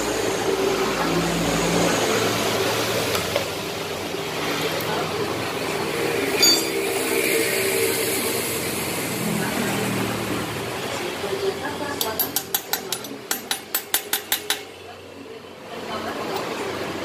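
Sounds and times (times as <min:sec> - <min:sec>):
hand tool clinking on metal: 0:06.4 - 0:06.9.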